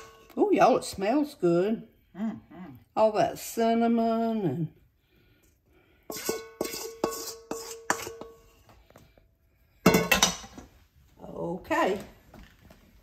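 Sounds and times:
spoon tapping metal bowl: 6.1s - 8.4s.

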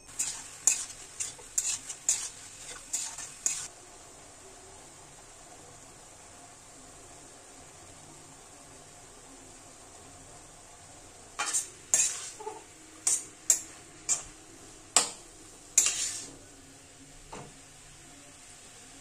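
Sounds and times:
metal spatula scraping a wok: 0.0s - 3.7s, 11.4s - 14.4s, 15.7s - 16.4s
faint steady hiss: 0.0s - 19.0s.

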